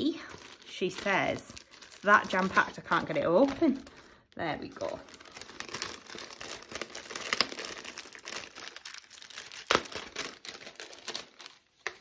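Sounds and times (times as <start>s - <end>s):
crinkly packaging rustling: 0.0s - 12.0s.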